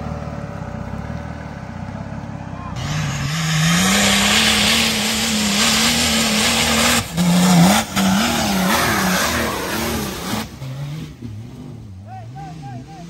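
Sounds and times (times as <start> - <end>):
diesel engine revving high: 0.0 - 13.0
wheels spinning spraying dirt: 2.7 - 12.4.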